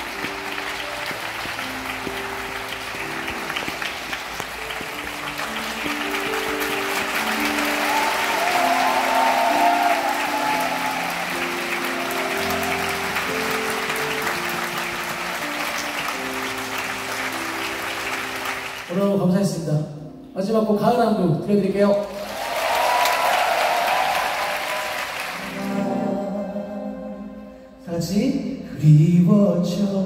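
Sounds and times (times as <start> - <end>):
audience applause: 0.0 - 19.0, 22.0 - 26.0.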